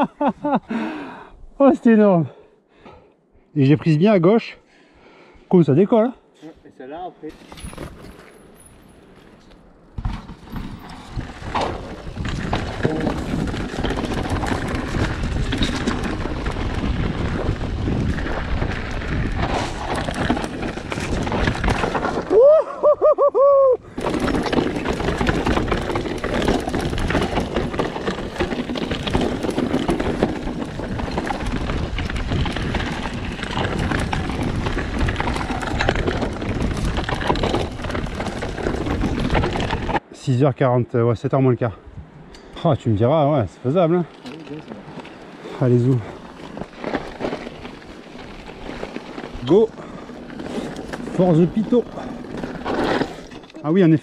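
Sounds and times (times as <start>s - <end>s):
bike clattering over stones: 7.3s - 22.6s, 23.8s - 40.0s, 43.6s - 54.0s
wind rushing on microphone: 11.0s - 22.3s.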